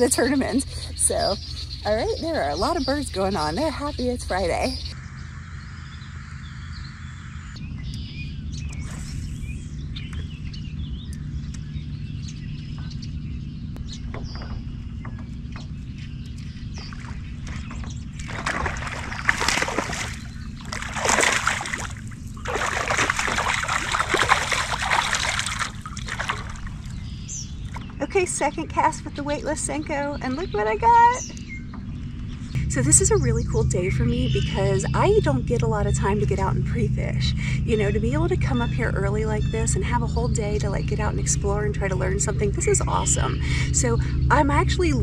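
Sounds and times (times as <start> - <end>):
steady low rumble: 0.0 - 45.0
water splashing beside kayak: 16.8 - 28.1
fish thrashing at surface: 16.9 - 27.0.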